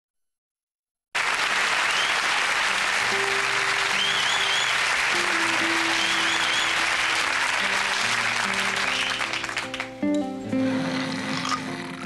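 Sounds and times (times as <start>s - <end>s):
audience applauding: 1.2s - 10.2s
opening music: 1.2s - 12.0s.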